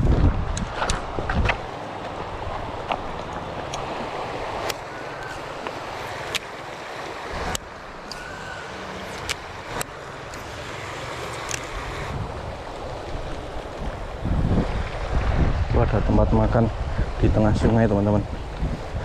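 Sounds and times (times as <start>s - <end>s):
footsteps on river cobbles: 0.0s - 8.3s, 12.3s - 14.6s
river rushing over stones: 0.0s - 19.0s.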